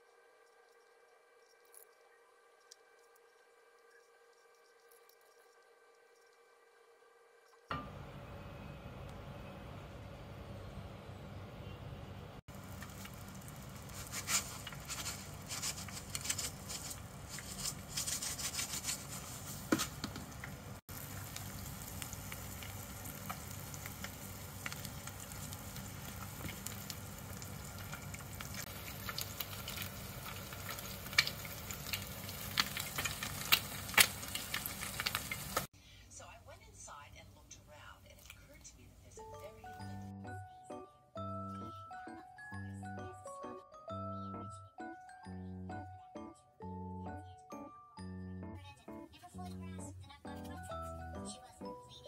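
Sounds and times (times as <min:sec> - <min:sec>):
eggs sizzling in oil: 0:12.5 - 0:35.7.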